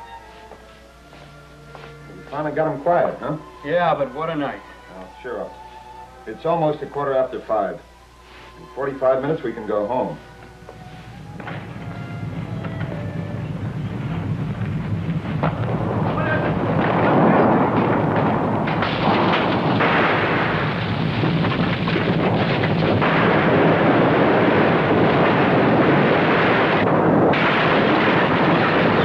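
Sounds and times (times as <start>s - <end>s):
deep earthquake rumble: 11.2s - 29.0s
cracks and crashes of debris: 14.6s - 29.0s.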